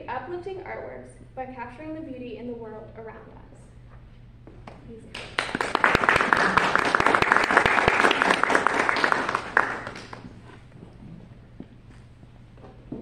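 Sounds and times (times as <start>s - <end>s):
audience applauding: 5.2s - 10.4s.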